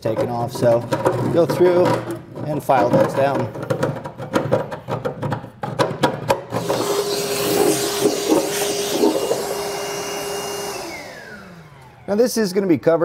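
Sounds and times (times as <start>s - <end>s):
electric motor running with hiss: 6.6s - 12.0s.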